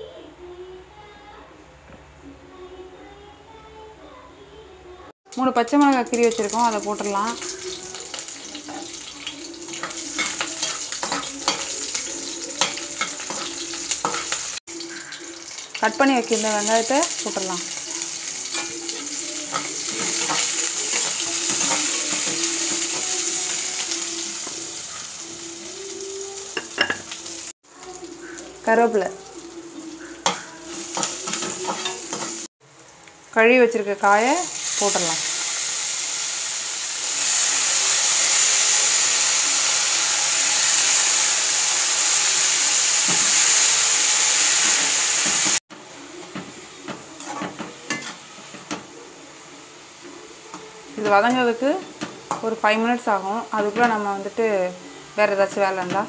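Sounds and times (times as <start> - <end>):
onions sizzling in hot oil: 5.3 - 56.0
metal spatula scraping a pan: 7.3 - 15.8, 17.7 - 23.6, 29.9 - 32.5, 47.2 - 48.7.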